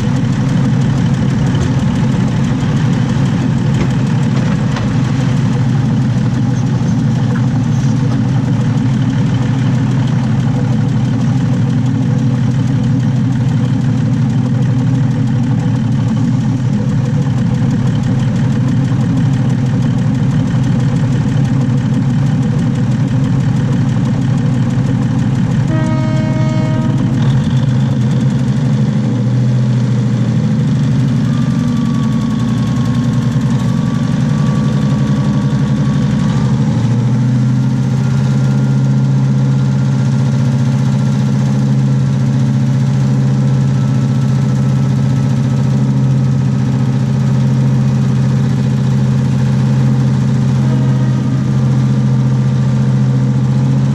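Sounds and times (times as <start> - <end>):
diesel engine running: 0.0 - 53.9
steady pitched tone: 25.4 - 28.4.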